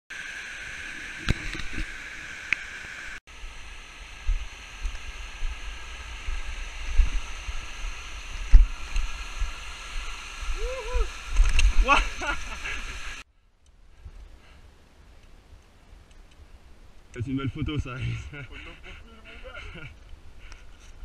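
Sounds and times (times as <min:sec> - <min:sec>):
stream rushing over rocks: 0:03.6 - 0:13.2.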